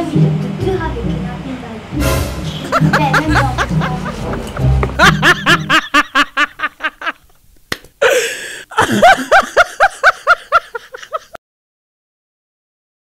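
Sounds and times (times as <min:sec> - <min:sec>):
person laughing: 0:02.6 - 0:07.3, 0:08.0 - 0:11.4
breathy sound: 0:08.0 - 0:09.2.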